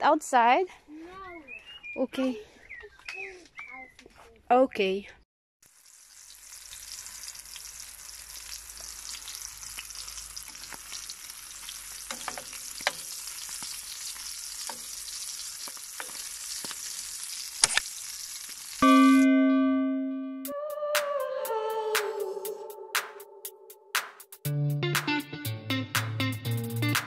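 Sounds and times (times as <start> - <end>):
sausage sizzling in a frying pan: 5.6 - 18.8
loud electronic music: 24.4 - 27.0.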